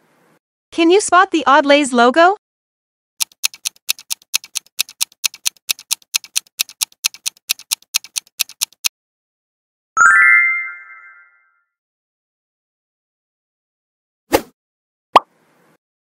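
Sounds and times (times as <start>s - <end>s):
clock ticking: 3.2s - 8.9s.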